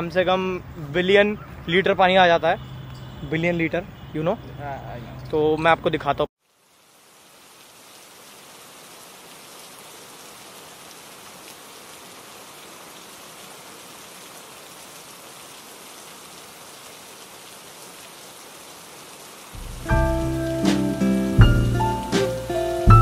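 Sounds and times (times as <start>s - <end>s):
light rain falling: 0.0s - 23.0s
music: 19.6s - 23.0s.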